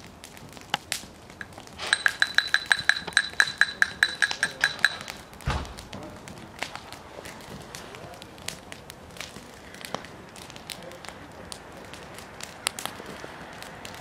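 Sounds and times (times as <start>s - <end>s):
rapid high metallic ringing: 1.4s - 5.4s
dull thump: 5.4s - 5.9s.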